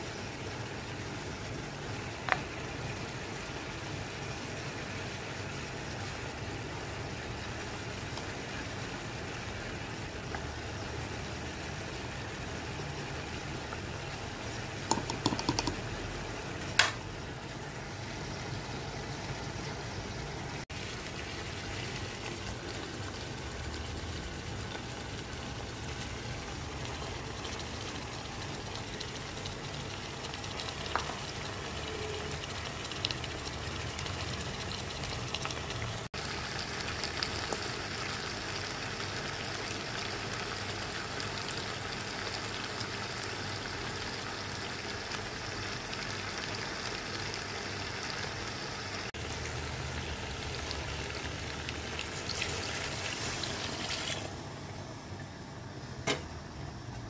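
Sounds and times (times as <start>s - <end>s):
meat cooking in a pot: 0.0s - 57.0s
spoon knocking pot rim: 14.9s - 15.8s.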